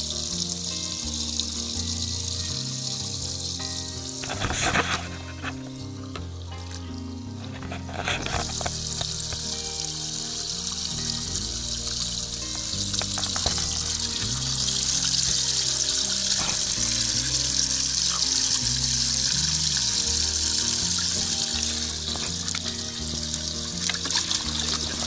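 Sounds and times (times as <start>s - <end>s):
background music with bass: 0.0s - 25.0s
water spray hissing: 8.2s - 25.0s.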